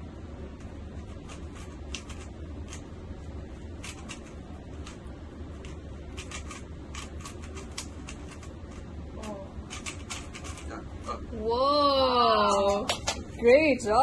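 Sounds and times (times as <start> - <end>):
steady low hum: 0.0 - 14.0
puzzle cube plastic clicks: 5.6 - 8.8, 9.7 - 10.7.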